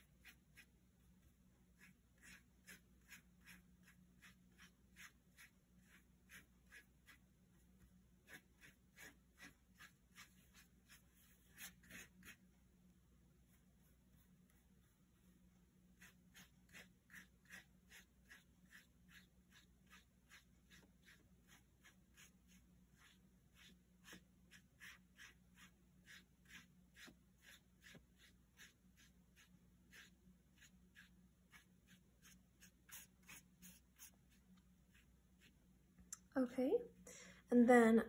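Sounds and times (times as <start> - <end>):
paintbrush swishing on paper: 0.0 - 12.5, 13.4 - 35.7.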